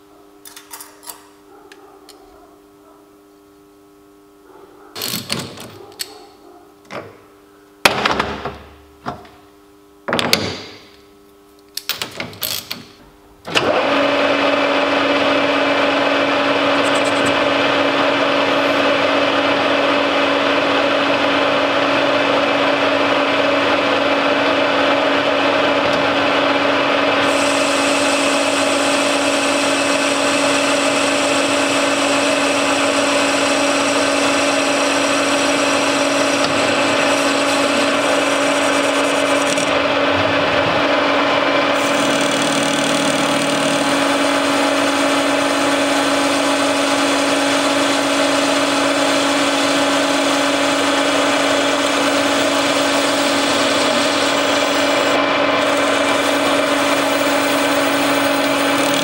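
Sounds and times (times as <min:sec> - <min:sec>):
metal lathe humming and whining: 0:13.5 - 0:59.0.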